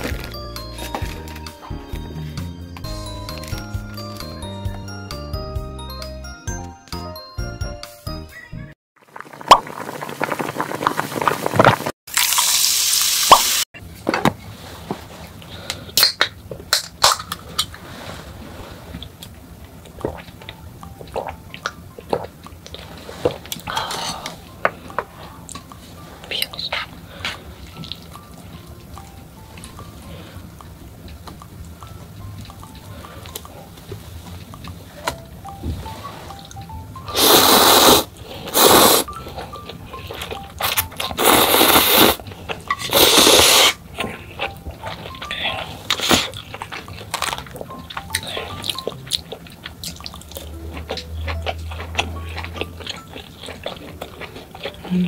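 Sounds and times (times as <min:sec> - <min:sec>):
noodles slurped from a bowl: 0:37.1 - 0:39.2, 0:41.1 - 0:44.2.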